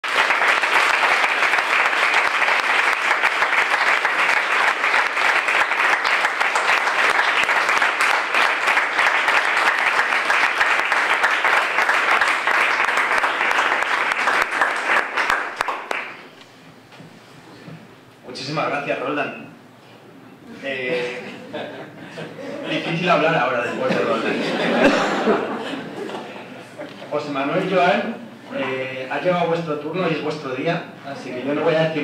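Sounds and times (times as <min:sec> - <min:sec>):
audience applauding: 0:00.0 - 0:16.3.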